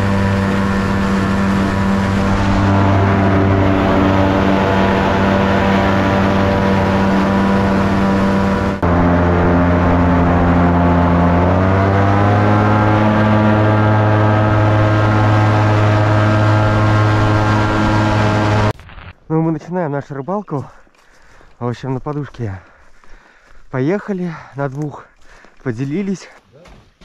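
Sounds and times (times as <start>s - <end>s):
water rushing along hull: 0.0s - 18.7s
motorboat engine running hard: 0.0s - 18.8s.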